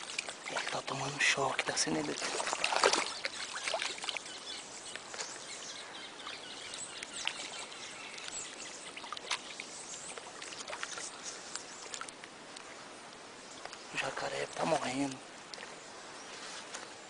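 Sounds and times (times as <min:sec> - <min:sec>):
outdoor background noise: 0:00.0 - 0:17.0
faint light clicks and ticks: 0:08.1 - 0:08.6, 0:10.1 - 0:12.7, 0:13.6 - 0:13.9.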